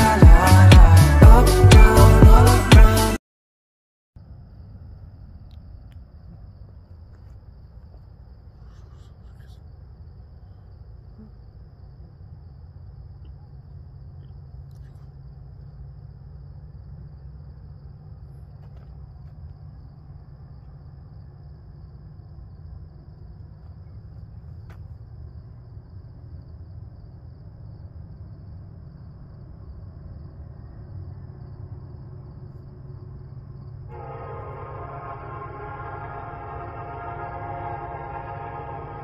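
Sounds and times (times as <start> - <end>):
freight train rumble: 31.6 - 39.0
locomotive air horn chord: 33.9 - 39.0.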